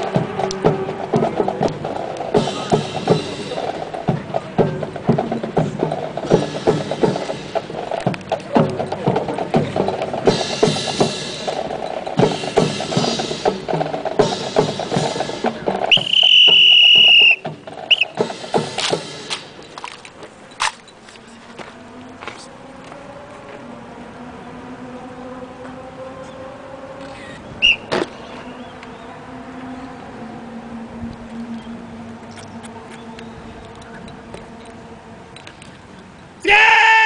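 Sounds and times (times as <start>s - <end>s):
rifles slapped and handled: 18.8s - 20.8s.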